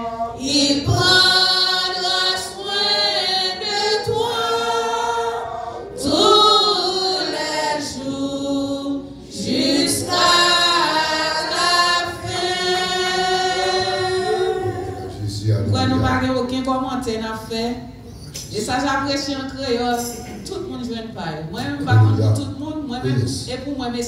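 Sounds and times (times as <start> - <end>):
congregation singing a hymn: 0.0 - 16.3.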